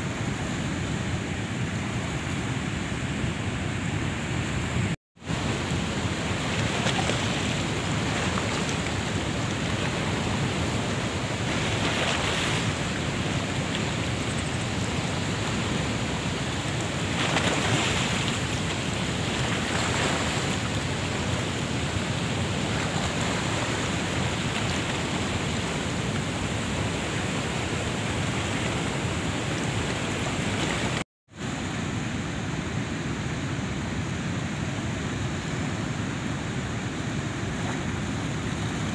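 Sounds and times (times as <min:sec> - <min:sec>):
river rushing: 0:00.0 - 0:38.9
waves splashing against rocks: 0:05.3 - 0:31.0.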